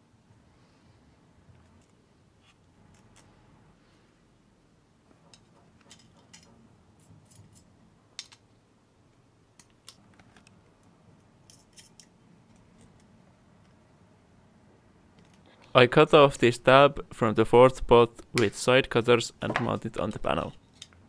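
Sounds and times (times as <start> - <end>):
pliers clicking and scraping metal: 5.3 - 8.4, 11.4 - 13.1.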